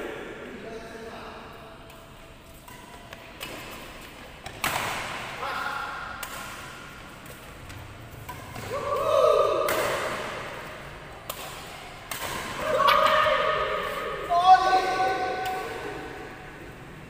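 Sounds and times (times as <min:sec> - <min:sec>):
racket striking shuttlecock: 0:02.6 - 0:05.4, 0:06.0 - 0:14.3, 0:15.1 - 0:16.2.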